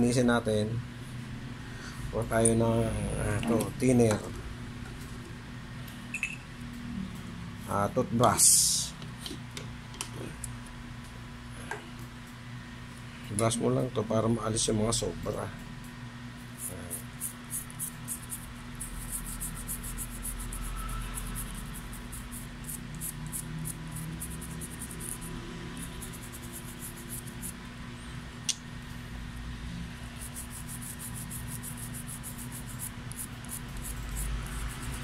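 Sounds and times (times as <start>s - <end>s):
toothbrush scrubbing metal stencil: 16.5s - 27.6s, 30.2s - 35.0s.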